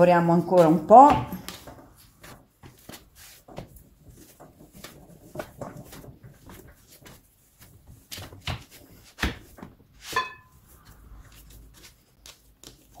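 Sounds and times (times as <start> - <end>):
hands kneading dough on board: 0.0 - 13.0.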